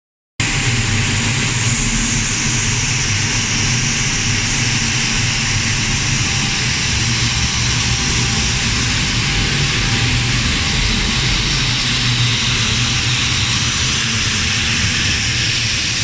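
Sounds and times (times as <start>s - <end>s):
boiler burner rushing noise: 0.4s - 16.0s
low hum: 0.4s - 16.0s.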